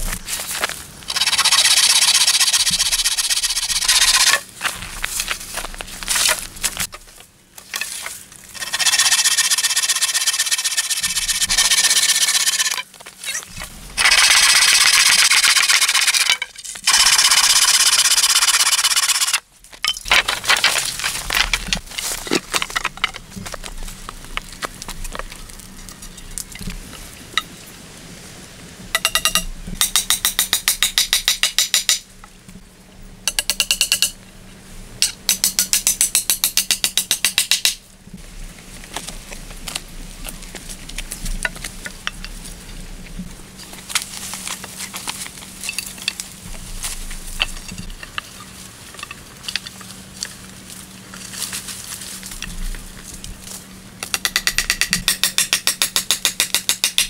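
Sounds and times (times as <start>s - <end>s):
bow saw rasping through wood: 8.6s - 12.8s
scattered clicks and knocks: 28.9s - 32.1s, 33.3s - 34.2s, 35.0s - 37.8s, 54.0s - 57.0s.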